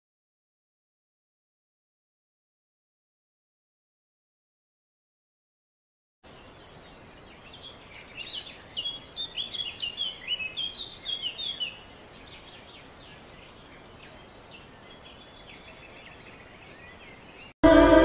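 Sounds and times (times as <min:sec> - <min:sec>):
songbird twittering: 0:06.2 - 0:17.5
faint steady hiss: 0:06.2 - 0:18.0.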